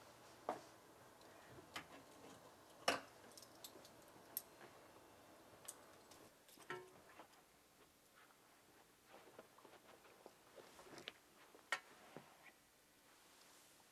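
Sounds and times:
footsteps: 0:07.0 - 0:12.3.

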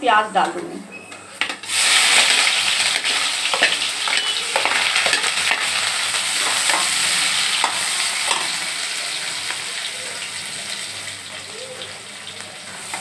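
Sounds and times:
metal spoon scraping a pan: 0:01.4 - 0:08.7
onions sizzling in hot oil: 0:01.4 - 0:13.0.

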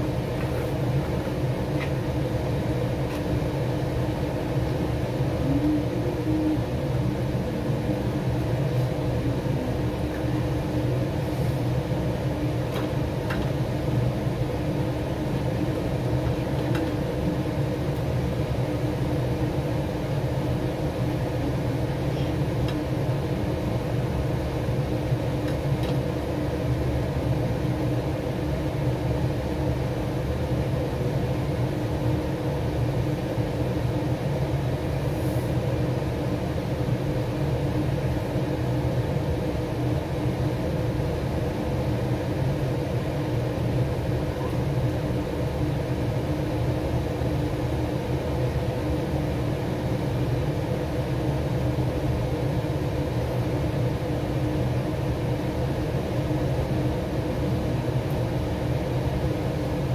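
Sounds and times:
kitchen fan humming: 0:00.0 - 0:35.0
faint steady tones: 0:03.5 - 0:11.2.

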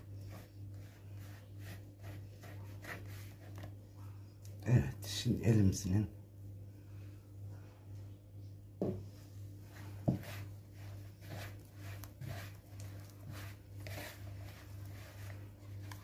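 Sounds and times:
hands kneading dough: 0:00.0 - 0:03.8, 0:09.0 - 0:16.0
steady low hum: 0:00.0 - 0:16.0.

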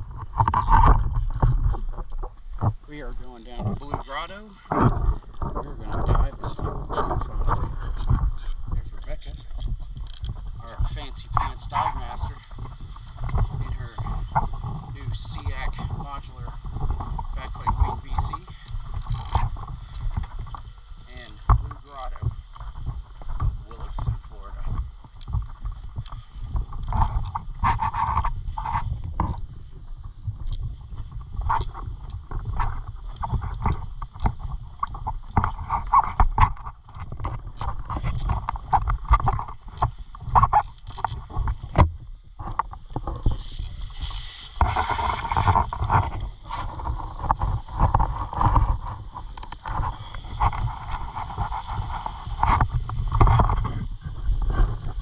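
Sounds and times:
low microphone rumble: 0:00.0 - 0:55.0
rustling noise: 0:00.0 - 0:55.0
scuba gear knocking and clinking: 0:06.9 - 0:15.8.

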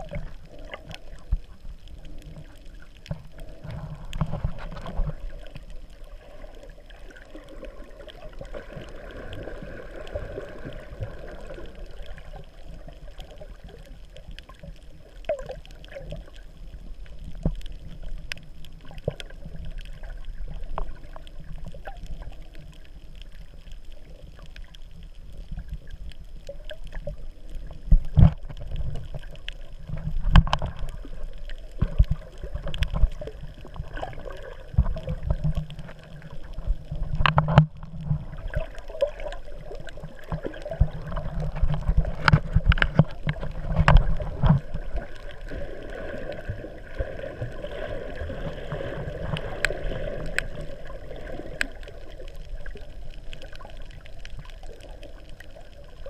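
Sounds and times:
muffled underwater rumble: 0:00.0 - 0:56.0
sharp clicks and knocks: 0:37.1 - 0:38.2.

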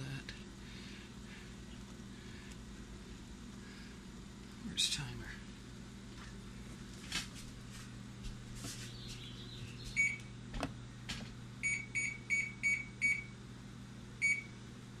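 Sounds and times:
microwave keypad beeps: 0:10.0 - 0:10.3, 0:11.6 - 0:13.3, 0:14.2 - 0:14.5.

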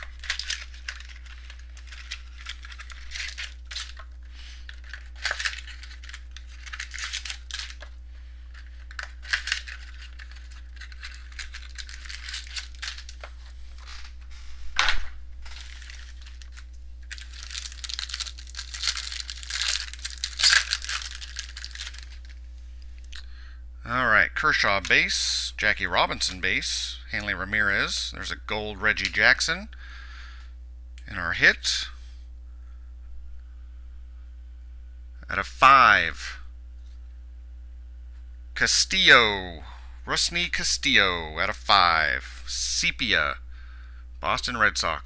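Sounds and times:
plastic wrap and cardboard tearing: 0:00.0 - 0:07.9, 0:08.5 - 0:14.2, 0:15.4 - 0:22.4.

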